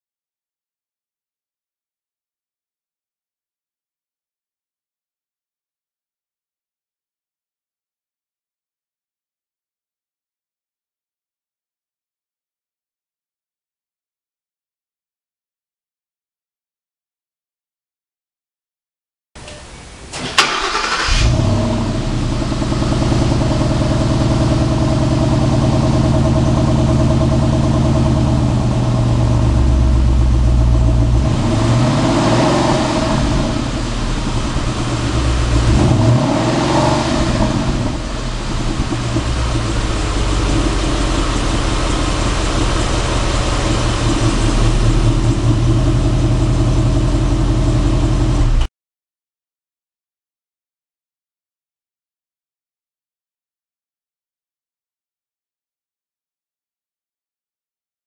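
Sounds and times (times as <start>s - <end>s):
car engine starting and idling: 19.4s - 48.7s
car engine revving: 20.1s - 48.7s.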